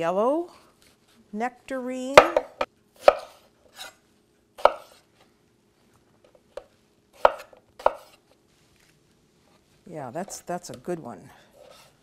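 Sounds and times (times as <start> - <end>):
knife slicing fruit: 2.6 - 4.0, 4.6 - 5.1, 6.6 - 8.3.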